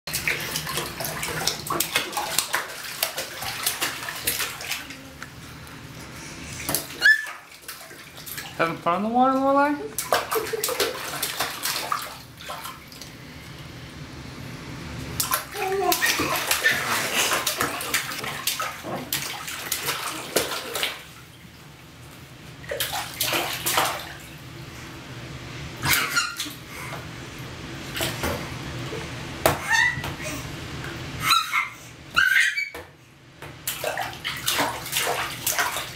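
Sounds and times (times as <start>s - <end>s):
baby splashing water: 0.1s - 5.4s, 6.4s - 13.1s, 15.2s - 21.4s, 22.6s - 24.3s, 33.6s - 35.9s
baby squealing: 7.0s - 7.4s, 29.6s - 30.1s, 31.2s - 32.8s.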